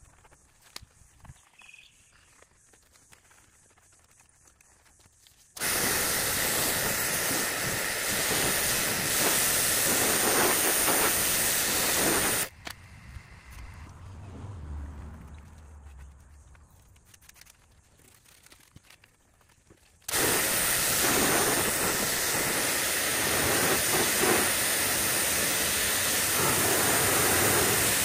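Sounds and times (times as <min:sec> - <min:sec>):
pressure washer spraying metal: 0:05.6 - 0:12.5, 0:20.1 - 0:28.0.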